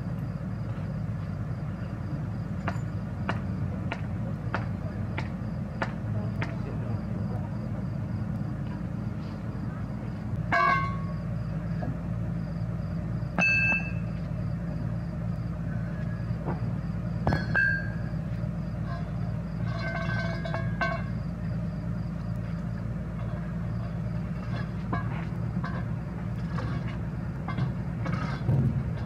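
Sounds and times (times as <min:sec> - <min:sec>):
diesel engine idling: 0:00.0 - 0:29.0
sharp metallic clanks: 0:10.4 - 0:11.2, 0:13.3 - 0:14.1, 0:17.2 - 0:18.2, 0:18.8 - 0:21.2.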